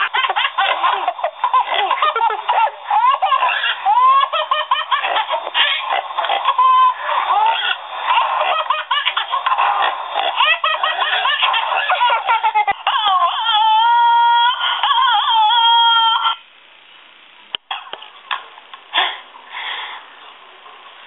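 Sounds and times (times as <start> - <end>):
baby giggling: 0.0 - 16.4
baby crying: 1.4 - 5.9, 6.5 - 7.8, 10.4 - 16.4.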